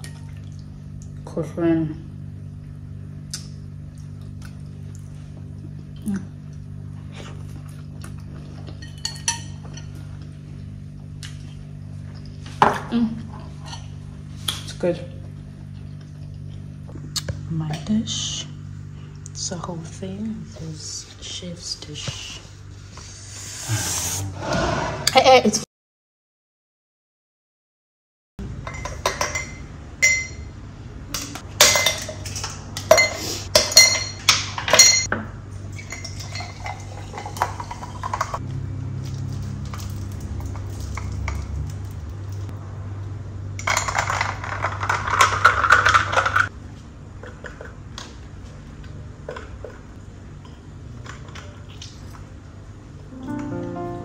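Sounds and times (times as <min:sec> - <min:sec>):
hissing noise: 0:23.1 - 0:25.1.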